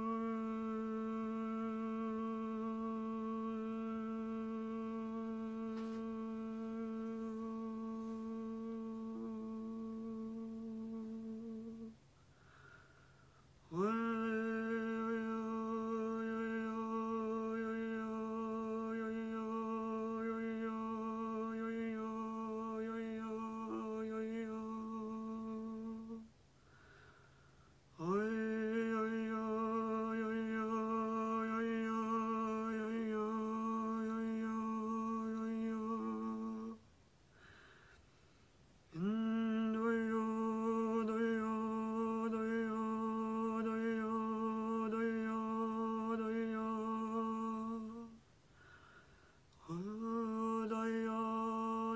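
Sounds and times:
woman humming steady notes: 0:00.0 - 0:12.0, 0:28.0 - 0:36.8
woman breathing: 0:12.1 - 0:13.6, 0:26.5 - 0:27.9, 0:37.2 - 0:38.6, 0:48.4 - 0:49.5.

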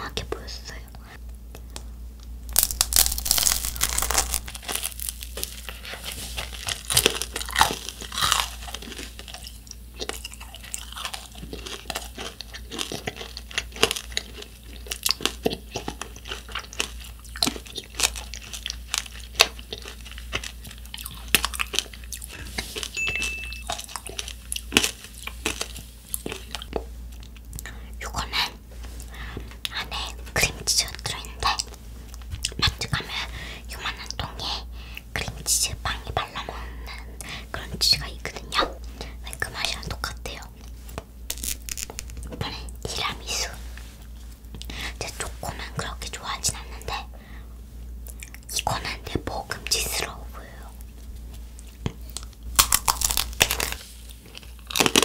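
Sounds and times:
candy shell cracking: 0:02.5 - 0:22.2, 0:41.3 - 0:43.1, 0:51.9 - 0:55.0
crunching and chewing: 0:02.5 - 0:27.8, 0:37.1 - 0:47.1, 0:48.0 - 0:55.0.

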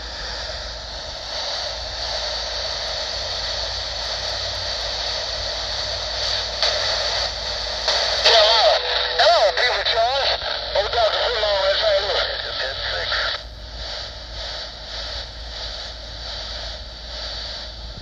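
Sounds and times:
radio static hiss: 0:00.0 - 0:18.0
warbling radio signal: 0:07.9 - 0:13.4.

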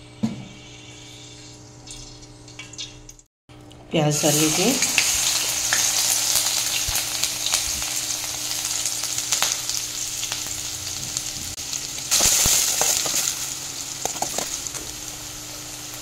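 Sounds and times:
onions sizzling in hot oil: 0:04.1 - 0:16.0.

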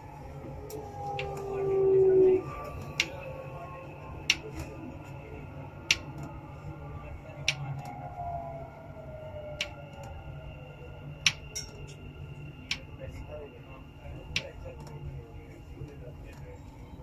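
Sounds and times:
low train rumble: 0:00.0 - 0:17.0.

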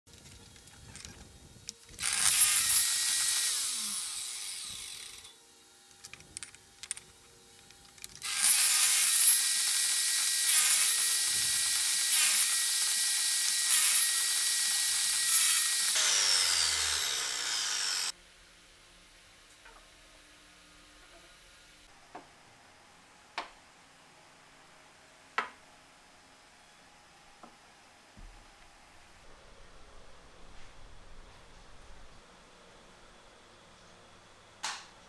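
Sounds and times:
power saw cutting plywood: 0:02.0 - 0:05.4, 0:08.2 - 0:18.1.

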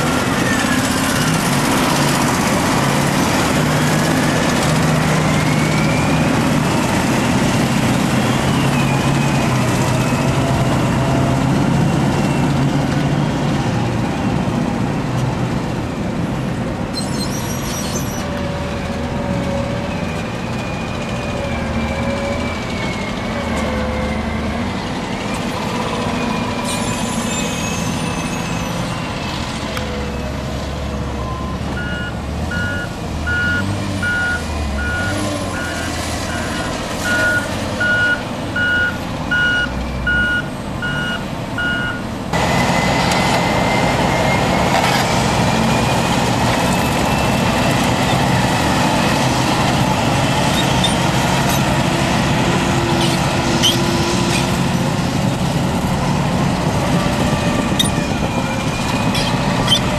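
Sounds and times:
bulldozer pushing scraper: 0:00.0 - 0:13.9, 0:16.9 - 0:59.9
diesel engines running: 0:00.0 - 0:59.9
reversing alarm beeping: 0:31.2 - 0:42.1.

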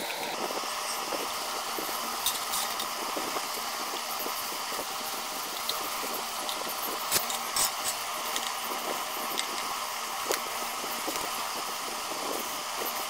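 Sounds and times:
steady hiss: 0:00.0 - 0:13.0
screwdriver and metal parts clinking: 0:02.2 - 0:03.0, 0:05.4 - 0:08.6, 0:09.2 - 0:09.7.

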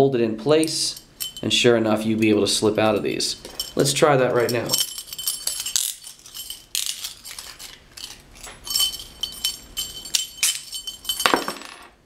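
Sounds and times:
handcuffs and metal tags jingling: 0:00.6 - 0:11.9.

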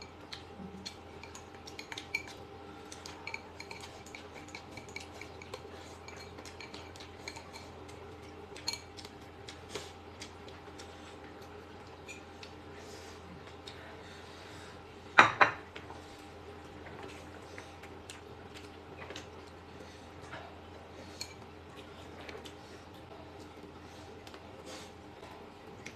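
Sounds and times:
faint low hum: 0:00.0 - 0:25.9
chopsticks clinking on bowls: 0:00.8 - 0:09.1.

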